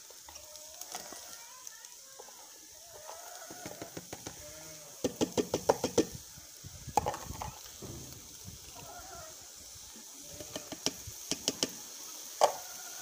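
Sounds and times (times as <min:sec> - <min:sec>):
goat bleating: 0:02.9 - 0:05.0.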